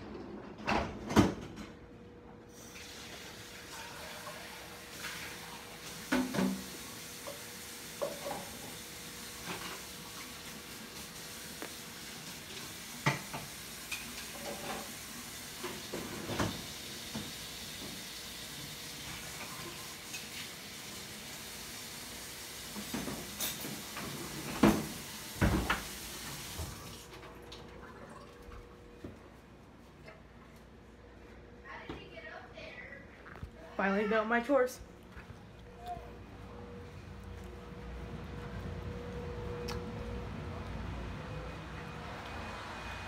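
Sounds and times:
running tap water: 0:02.5 - 0:28.8
dishes clinking in a steel sink: 0:08.0 - 0:08.8, 0:22.9 - 0:25.9.

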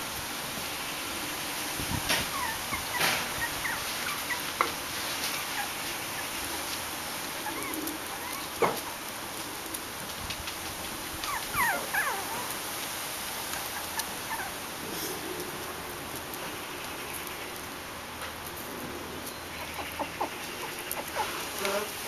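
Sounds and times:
puppies whimpering and yipping: 0:02.1 - 0:06.7, 0:07.4 - 0:09.0, 0:10.9 - 0:12.6, 0:13.5 - 0:14.7, 0:19.5 - 0:21.9
puppy yelp: 0:02.2 - 0:04.6, 0:05.2 - 0:06.3, 0:07.4 - 0:09.0, 0:11.2 - 0:12.6, 0:13.6 - 0:14.6.

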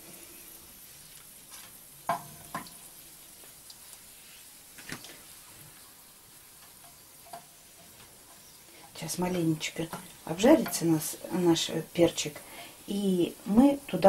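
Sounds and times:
peppers sizzling in oil: 0:00.0 - 0:14.0
wooden spatula knocking pan: 0:02.1 - 0:02.7, 0:09.8 - 0:11.2.

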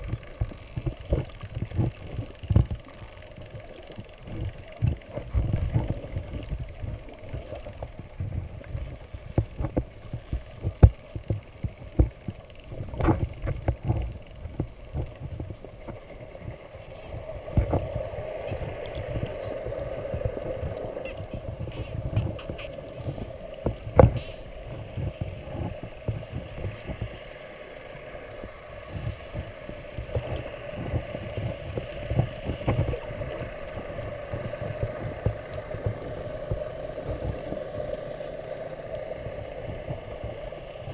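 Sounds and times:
low underwater hum and rumble: 0:00.0 - 0:40.9
dolphins whistling underwater: 0:08.8 - 0:10.7, 0:15.0 - 0:40.9.

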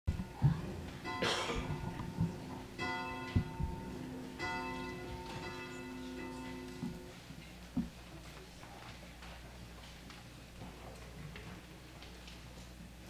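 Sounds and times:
church bell tolling: 0:01.0 - 0:07.2
soft low thumps: 0:01.6 - 0:05.3.

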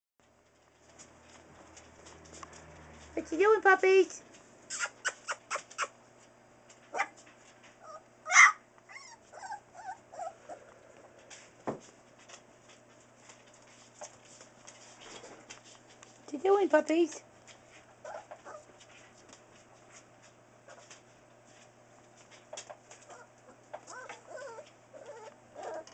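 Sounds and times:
puppies whining and yipping: 0:04.7 - 0:06.0, 0:07.8 - 0:10.8, 0:23.0 - 0:25.9
puppy whimpers: 0:04.7 - 0:06.0, 0:07.8 - 0:10.8, 0:18.0 - 0:18.7, 0:23.0 - 0:25.9
puppy yelp: 0:04.7 - 0:06.0, 0:06.9 - 0:07.2, 0:07.8 - 0:10.6, 0:18.0 - 0:18.7, 0:23.0 - 0:25.9.

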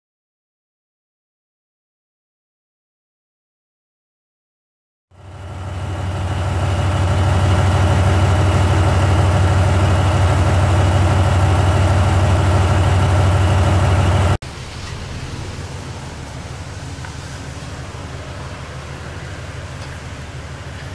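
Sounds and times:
locomotive engine idling: 0:05.1 - 0:20.9
quieter steady engine sound: 0:05.1 - 0:20.9.

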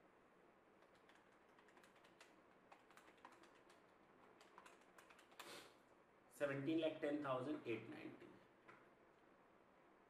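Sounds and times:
calculator keys clicking: 0:00.8 - 0:05.4.

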